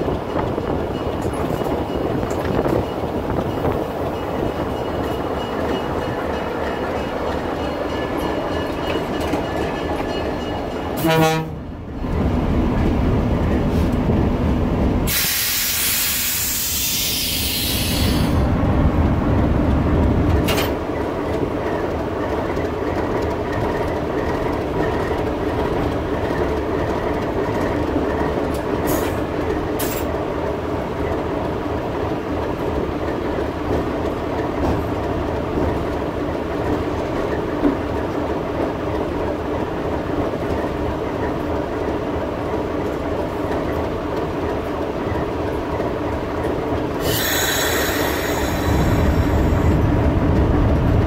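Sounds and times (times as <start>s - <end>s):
diesel locomotive engine running: 0.0s - 51.0s
loud hiss: 15.1s - 18.4s, 47.0s - 49.4s.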